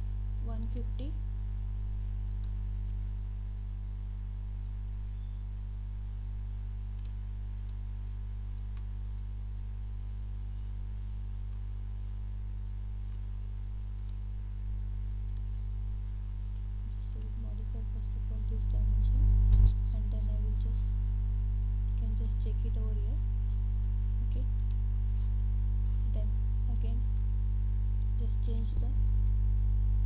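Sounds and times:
electrical mains hum: 0.0s - 30.0s
faint clicks: 2.2s - 3.1s, 6.9s - 8.9s, 13.9s - 15.7s.

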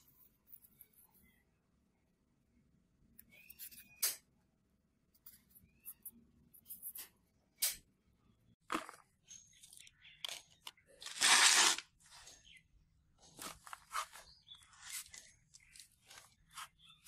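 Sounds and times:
hands crunching materials: 11.0s - 11.9s
loud rasping crunch: 11.0s - 11.9s.

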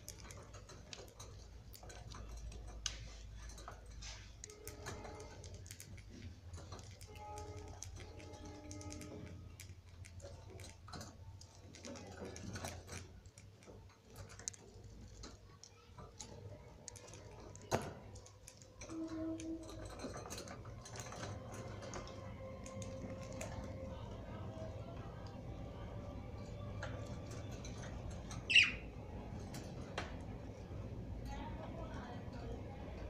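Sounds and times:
beaks clicking: 0.0s - 25.3s.

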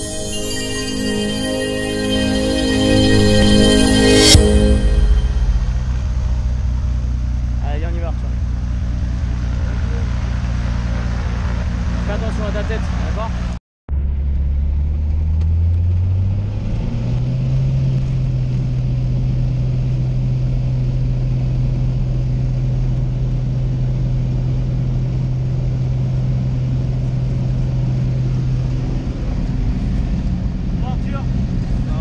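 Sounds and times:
light aircraft engine and propeller: 17.0s - 32.0s.

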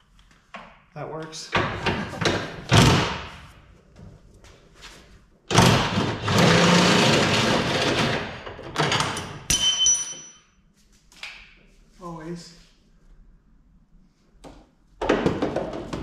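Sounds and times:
ringing metal clink: 9.5s - 10.5s.

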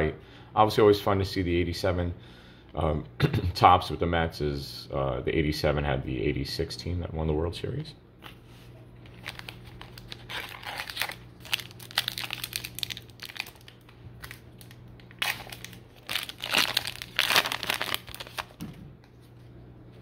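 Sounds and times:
card pack wrapper crinkling: 9.0s - 18.7s.

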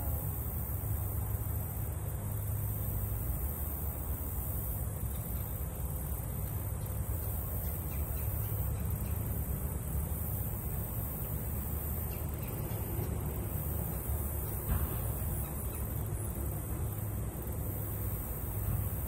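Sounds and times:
bird calls: 7.6s - 9.7s, 12.0s - 16.3s.

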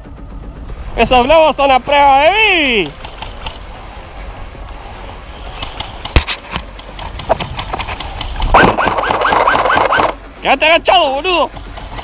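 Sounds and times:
airsoft rifle firing: 8.5s - 10.2s.

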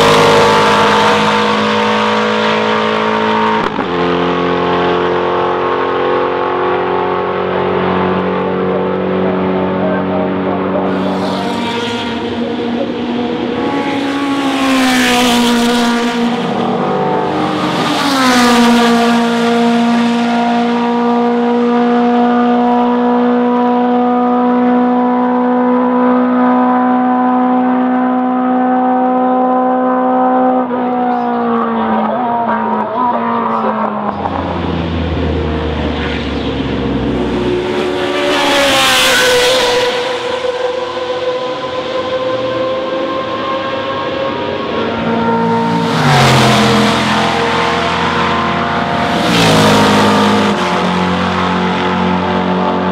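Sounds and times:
racing cars passing close: 0.0s - 52.9s
engine deep rumble: 30.9s - 38.4s
high-revving engine note: 34.4s - 52.8s.

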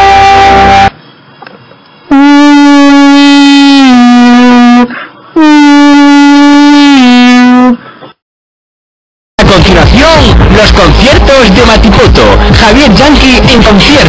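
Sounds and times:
buzzy horn tones: 0.0s - 0.9s, 2.1s - 7.8s.

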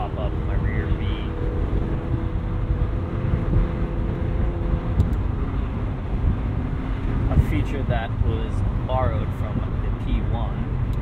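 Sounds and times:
car engine running: 0.0s - 11.0s
tyre and road rumble: 0.0s - 11.0s.

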